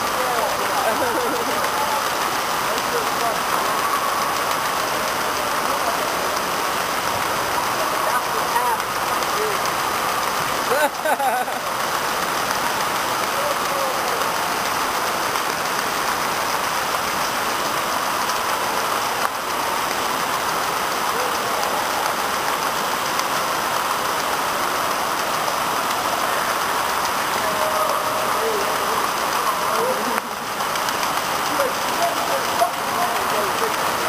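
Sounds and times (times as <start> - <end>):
water spraying onto floor: 0.0 - 34.0.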